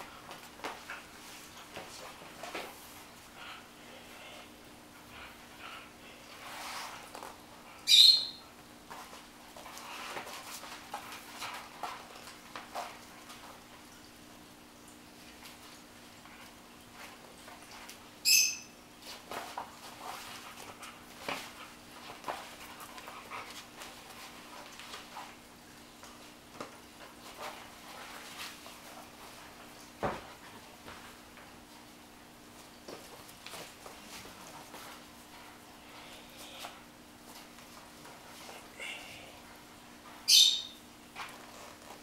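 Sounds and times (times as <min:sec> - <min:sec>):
faint steady hum: 0:00.0 - 0:42.0.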